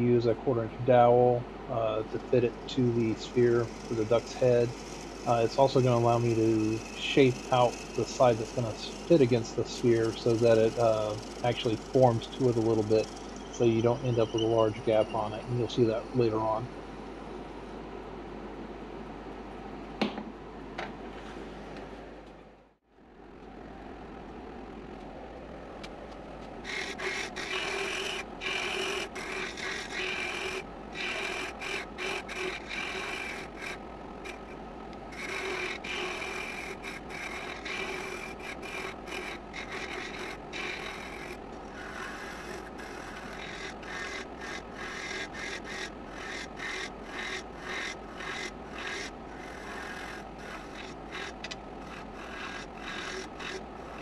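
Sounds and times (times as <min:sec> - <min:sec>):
turning tool scraping wood: 0:01.9 - 0:16.6, 0:26.6 - 0:54.0
wood lathe running: 0:02.0 - 0:16.8, 0:26.6 - 0:54.0.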